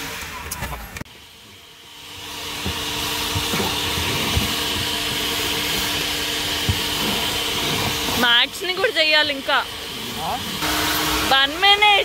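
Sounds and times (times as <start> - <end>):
vacuum hose sucking: 0.0 - 12.0
vacuum nozzle bumps: 2.2 - 9.8.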